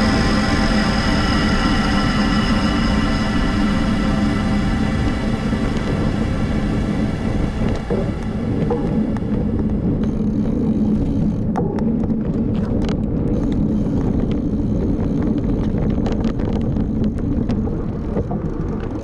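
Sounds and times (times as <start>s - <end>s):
bicycle tyre rumble on dirt: 0.0s - 19.0s
bike clicks and rattles: 7.7s - 19.0s.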